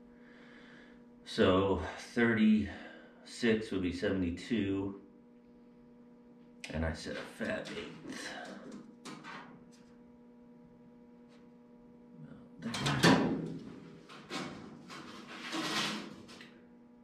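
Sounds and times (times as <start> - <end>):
steady low hum: 0.0 - 17.0
tape measure sliding and rattling: 14.3 - 16.4.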